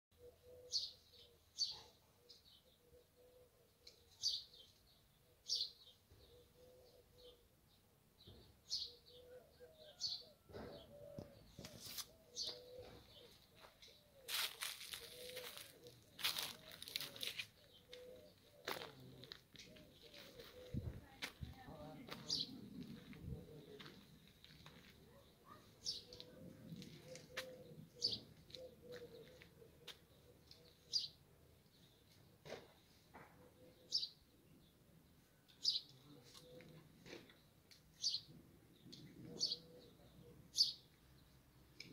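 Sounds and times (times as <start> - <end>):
songbird chirping: 0.1 - 41.9
dove cooing: 0.2 - 4.1, 6.2 - 7.5, 8.8 - 21.1, 25.1 - 31.4, 35.7 - 37.3, 39.0 - 40.7.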